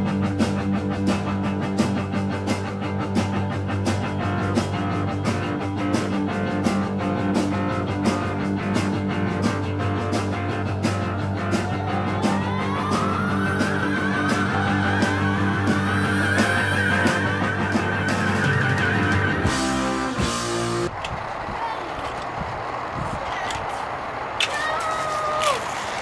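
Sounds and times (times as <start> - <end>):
rock music with electric guitar: 0.0 - 20.9
steady drum beat: 0.0 - 20.9
rising pitch glide: 9.6 - 22.0.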